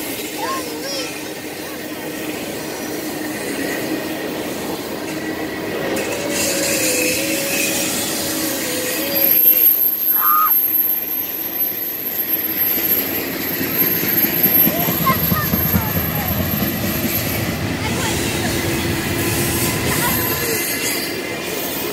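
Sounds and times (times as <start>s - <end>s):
train wheels rumbling on rail: 0.0s - 21.9s
wavering wheel squeal: 2.7s - 21.9s
thin high-pitched whine: 6.0s - 17.6s.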